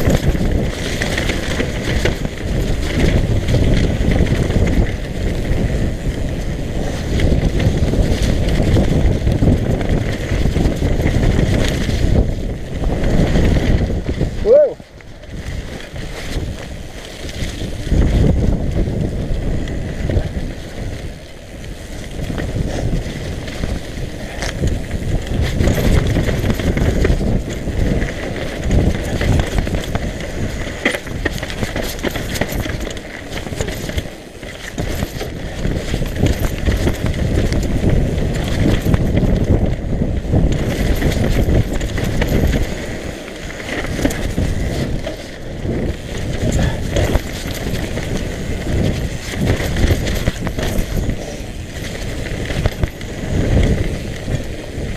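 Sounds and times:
bike knocks and rattles: 0.0s - 14.4s, 15.0s - 54.9s
bike tyres rumbling over dirt: 0.0s - 54.9s
wind buffeting microphone: 0.0s - 54.9s.

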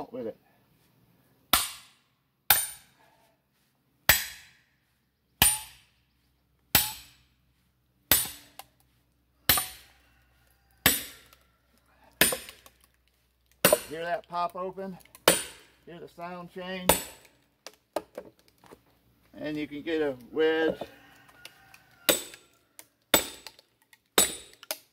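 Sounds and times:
hammer striking hatchet: 1.5s - 3.0s, 4.1s - 4.6s, 5.4s - 5.9s, 6.7s - 7.3s, 8.1s - 8.7s, 9.5s - 9.9s, 10.8s - 11.3s, 12.2s - 12.7s, 13.6s - 14.0s, 15.2s - 15.8s, 16.9s - 17.4s, 22.1s - 22.4s, 23.1s - 23.6s, 24.2s - 24.9s
wood splitting open: 12.2s - 15.8s, 22.1s - 24.9s.

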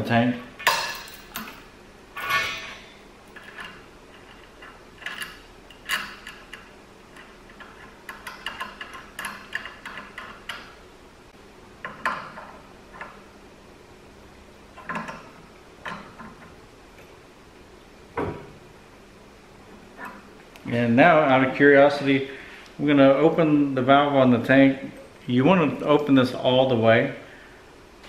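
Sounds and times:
metal hose and chain clinking: 0.6s - 10.7s.

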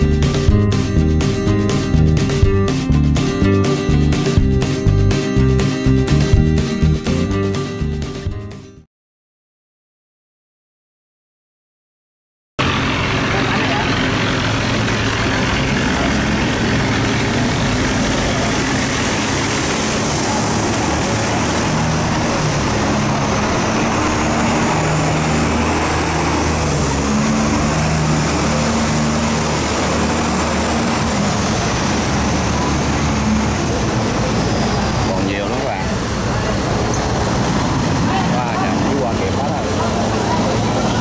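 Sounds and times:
boat diesel engines running: 0.0s - 6.8s, 12.6s - 41.0s
churning water rushing: 12.6s - 41.0s.

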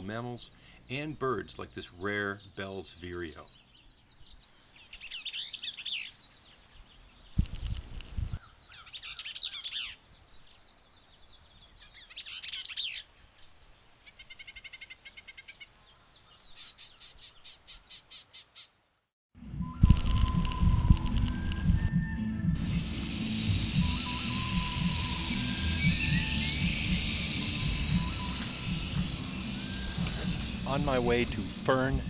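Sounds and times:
bird singing warbled phrases: 0.0s - 7.4s, 8.4s - 18.8s, 24.2s - 32.0s
loud noisy burst: 22.6s - 32.0s
bird chattering: 22.9s - 31.6s.

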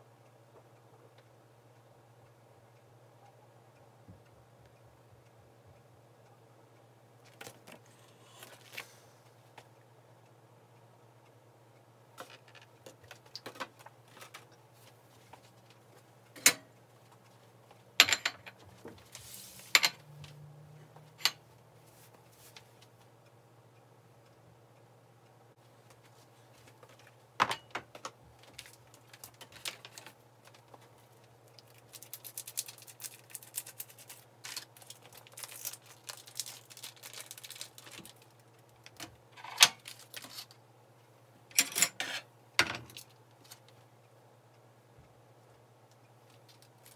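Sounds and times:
faint low hum: 0.0s - 46.9s
plastic wrap crinkling: 31.5s - 38.9s, 39.8s - 40.5s.

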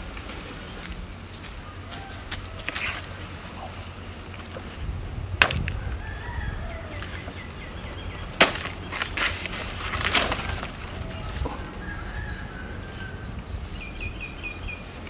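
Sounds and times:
sharp knocks and cracks: 5.4s - 5.8s, 8.4s - 11.6s.

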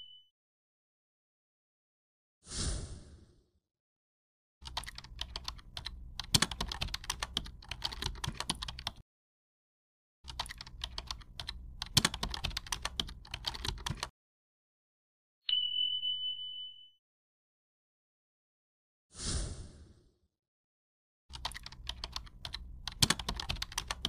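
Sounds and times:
high chime: 15.5s - 17.0s
keyboard key clicks: 21.3s - 24.0s.

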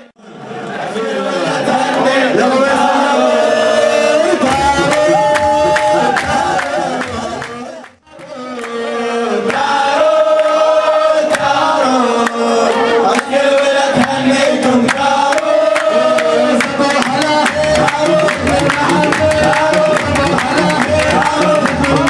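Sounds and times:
men singing in unison: 0.6s - 22.0s
hands clapping in time: 4.4s - 8.8s, 11.2s - 22.0s.

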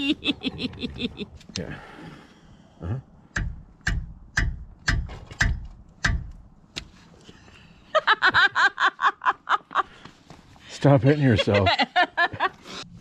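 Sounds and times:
woman laughing: 0.0s - 1.4s, 7.9s - 10.0s, 11.0s - 12.6s
mallet hitting metal wrench: 3.4s - 6.4s.

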